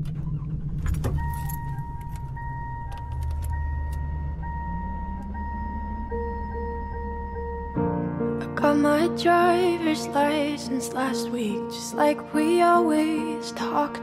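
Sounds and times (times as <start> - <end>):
clicks: 0.0 - 6.2
low engine rumble: 0.0 - 10.8
car warning chime: 1.0 - 8.0.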